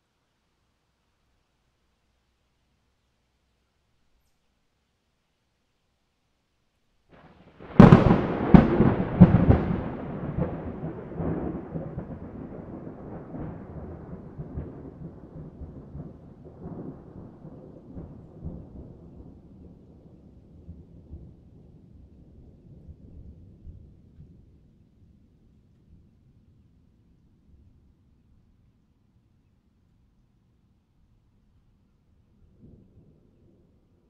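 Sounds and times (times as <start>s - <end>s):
thunder cracks and rumble: 7.5s - 24.6s.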